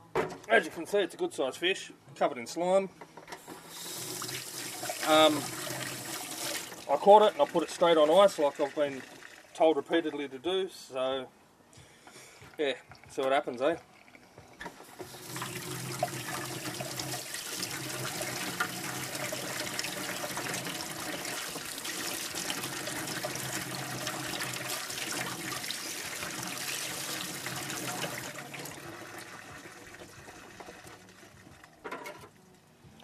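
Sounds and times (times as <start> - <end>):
tap water running into sink: 3.6 - 9.5, 12.8 - 31.7.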